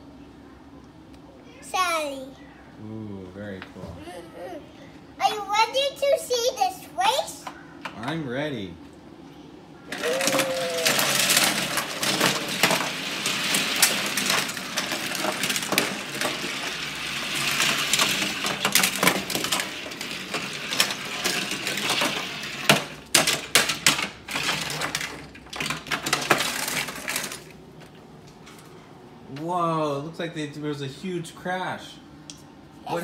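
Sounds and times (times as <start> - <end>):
toy cars clattering: 9.9 - 27.6.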